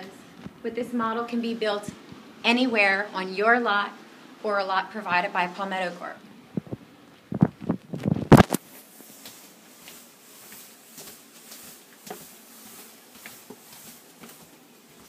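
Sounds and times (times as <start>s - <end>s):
footsteps going down stairs: 8.4s - 15.0s.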